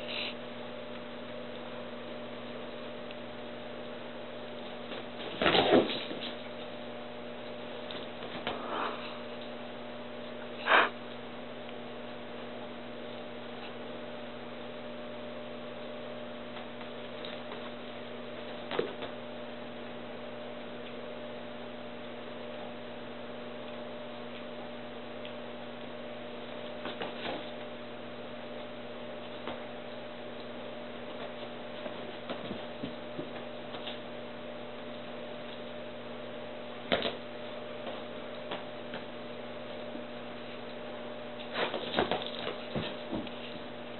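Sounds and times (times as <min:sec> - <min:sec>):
low electrical hum: 0:00.0 - 0:43.9
dogs playing: 0:07.4 - 0:11.2, 0:28.4 - 0:34.2, 0:36.9 - 0:43.9.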